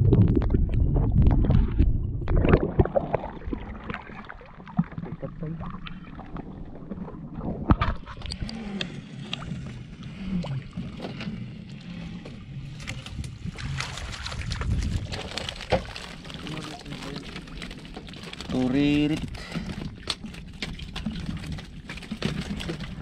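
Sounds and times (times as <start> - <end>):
water sloshing and splashing: 0.0 - 23.0.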